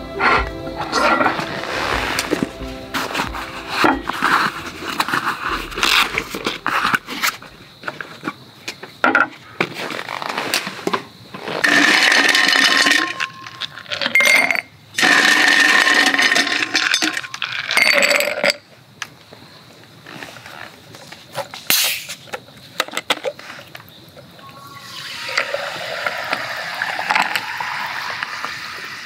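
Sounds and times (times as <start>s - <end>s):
ice cubes clattering into glass: 11.6s - 18.6s.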